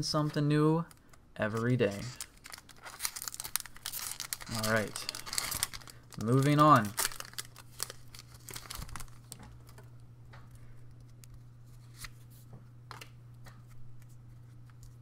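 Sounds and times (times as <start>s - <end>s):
steady low hum: 0.0s - 15.0s
foil wrapper crinkling and tearing: 0.9s - 9.8s.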